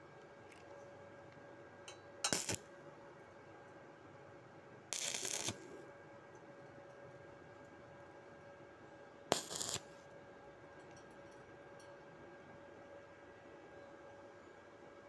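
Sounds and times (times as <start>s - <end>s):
welding arc crackling: 2.3s - 2.6s, 4.9s - 5.6s, 9.3s - 10.0s.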